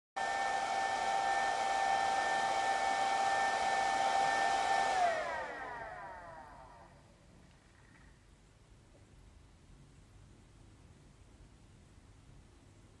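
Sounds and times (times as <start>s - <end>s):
electric motor whine: 0.2s - 7.0s.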